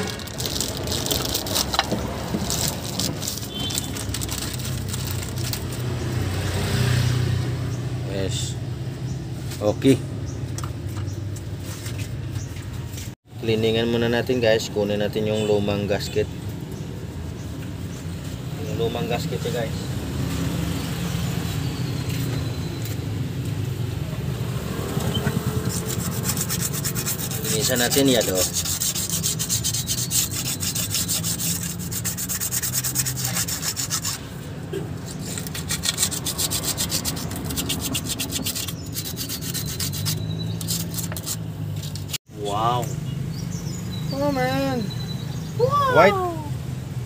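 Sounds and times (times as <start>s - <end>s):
plastic bag crinkling: 0.0s - 1.8s, 2.4s - 5.6s.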